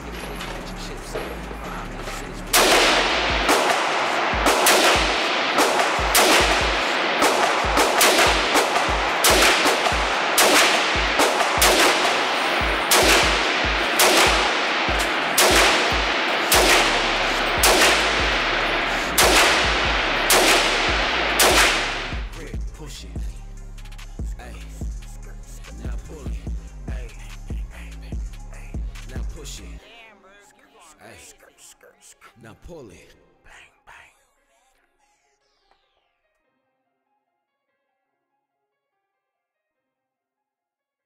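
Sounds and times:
rifle shots echoing indoors: 2.0s - 22.4s.

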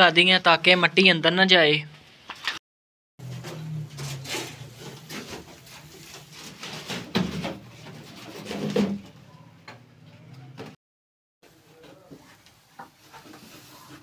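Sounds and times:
wooden frame knocking and scraping: 3.2s - 9.2s.

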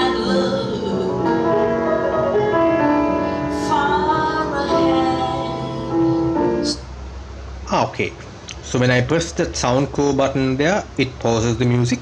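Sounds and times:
woman singing over piano: 0.0s - 1.6s, 3.2s - 6.8s.

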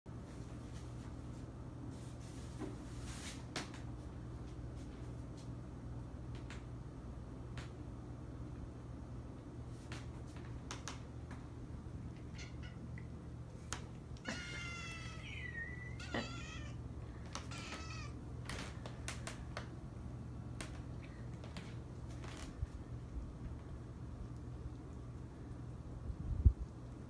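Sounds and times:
cat meowing: 12.2s - 13.1s, 14.2s - 18.2s.

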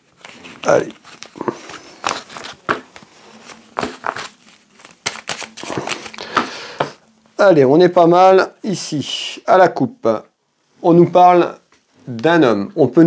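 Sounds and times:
cards being shuffled: 0.0s - 7.0s.

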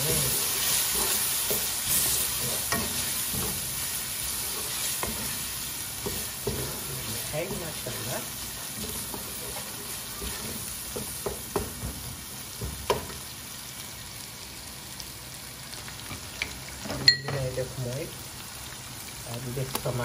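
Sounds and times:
onions sizzling in oil: 0.0s - 20.0s.

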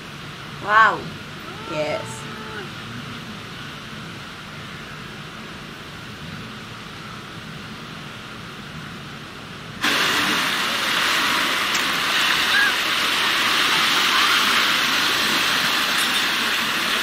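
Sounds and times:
shallow surf washing over sand: 9.7s - 17.0s.

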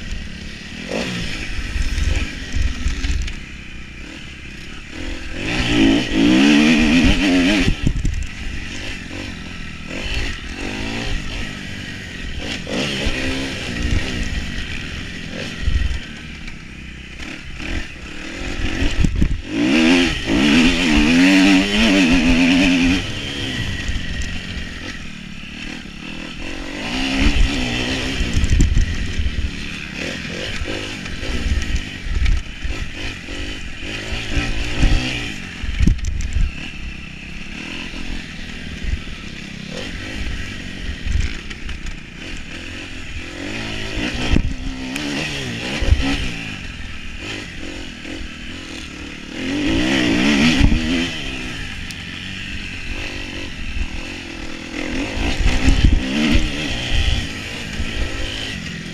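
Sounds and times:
dirt bike engine revving: 0.0s - 58.9s.

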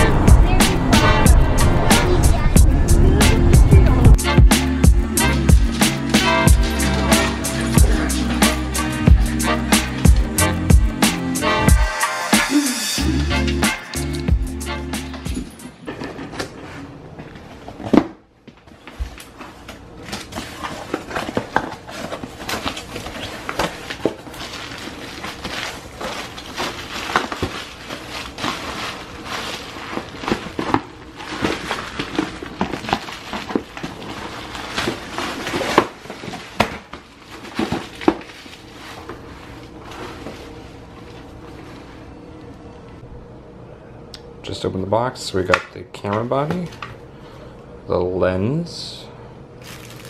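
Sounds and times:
bubble wrap crinkling: 18.7s - 42.2s, 49.6s - 50.0s.

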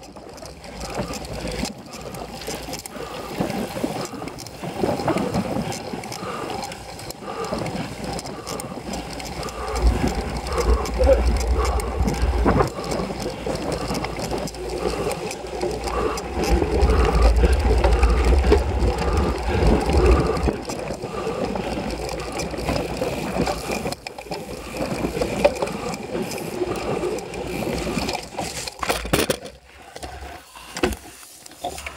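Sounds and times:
bike rattling: 0.0s - 31.9s
low rumble on microphone: 9.5s - 13.2s, 15.9s - 21.3s.

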